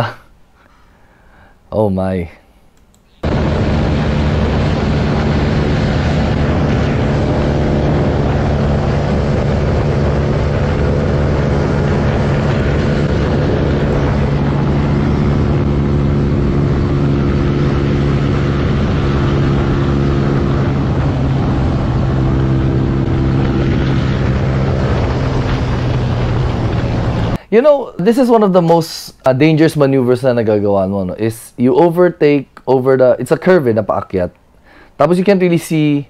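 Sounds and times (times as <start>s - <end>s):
motorcycle engine at high revs: 3.2s - 27.4s
road noise: 3.2s - 27.4s
wind noise: 3.2s - 27.4s.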